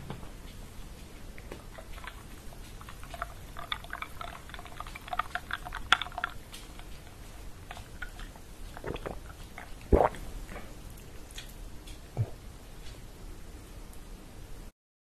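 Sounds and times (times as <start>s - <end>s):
sipping and swallowing: 1.4s - 10.6s.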